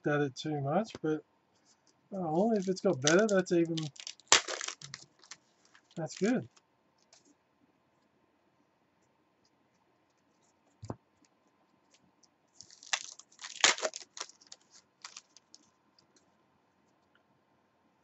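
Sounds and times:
cards clicking: 2.4s - 5.4s
foil pack tearing and crinkling: 2.4s - 6.4s, 12.6s - 15.6s.

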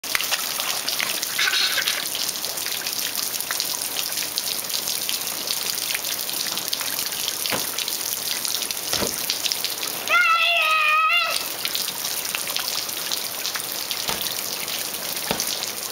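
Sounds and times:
water spray pattering on pool: 0.0s - 15.9s
soft thumps: 15.3s - 15.5s.

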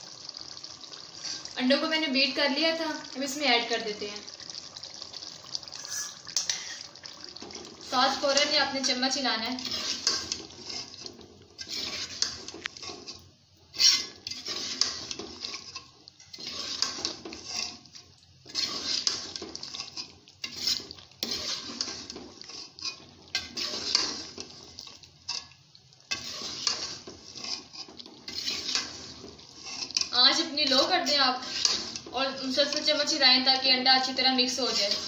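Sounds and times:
metal spoon scraping a metal pot: 7.5s - 33.2s, 34.0s - 35.0s.

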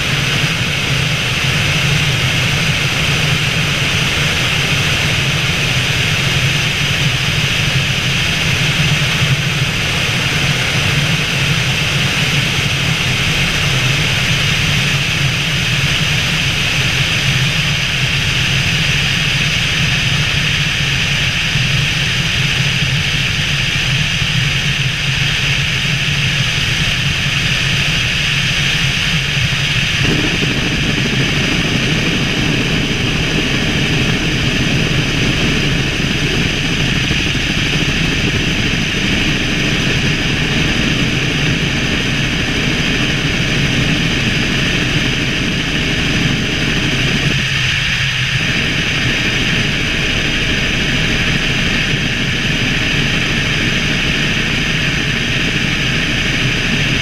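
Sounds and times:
helicopter engine and rotor drone: 0.0s - 57.0s.

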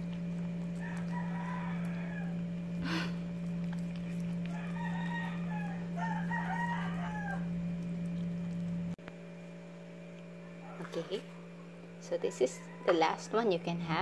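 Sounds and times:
low hum: 0.0s - 14.0s
rooster crowing: 0.7s - 2.8s, 4.5s - 7.8s, 10.4s - 11.1s, 12.1s - 13.9s.

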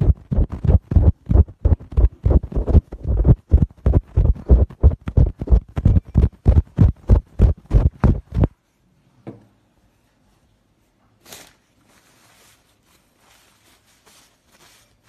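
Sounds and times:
fabric and tissue rustling: 10.0s - 15.0s.

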